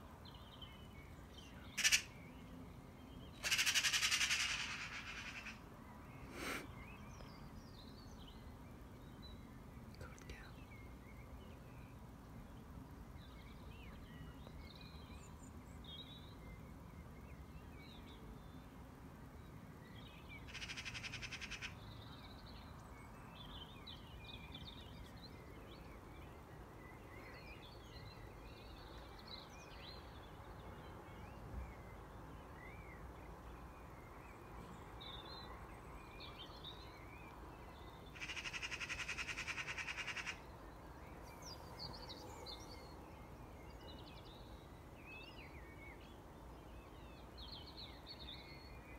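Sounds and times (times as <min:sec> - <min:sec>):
faint songbird chirps: 0:00.0 - 0:48.9
magpie chattering rattle: 0:01.8 - 0:02.1, 0:03.4 - 0:05.5.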